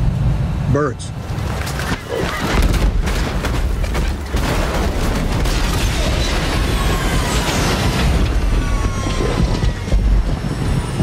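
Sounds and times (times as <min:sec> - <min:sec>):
thuds and bangs of impacts: 0:01.7 - 0:11.0
low jet rumble: 0:06.3 - 0:11.0.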